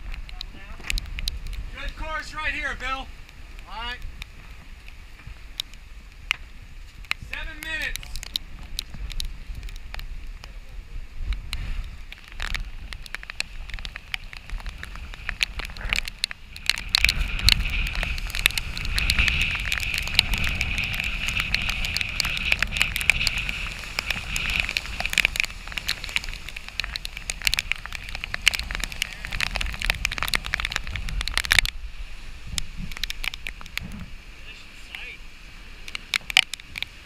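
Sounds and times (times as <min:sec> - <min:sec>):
rain ticking on camera: 0:00.0 - 0:37.0
wind buffeting microphone: 0:00.0 - 0:37.0.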